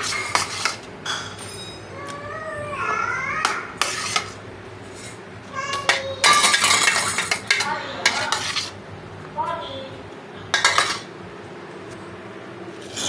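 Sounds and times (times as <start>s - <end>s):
metal spoon scraping steel plate: 0.0s - 1.8s, 3.8s - 5.2s, 5.9s - 8.8s, 10.5s - 11.1s, 12.8s - 13.0s.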